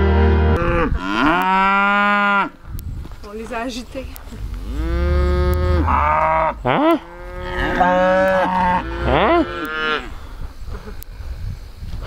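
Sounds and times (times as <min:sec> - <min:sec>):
cattle mooing: 0:04.6 - 0:10.1.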